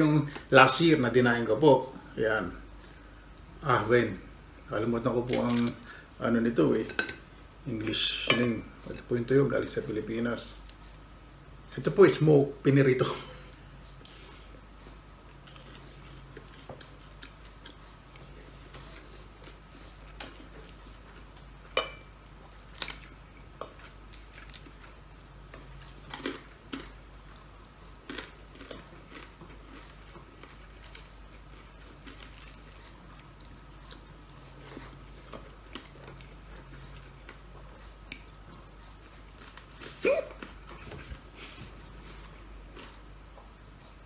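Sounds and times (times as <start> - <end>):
man chewing food: 13.3 - 44.0.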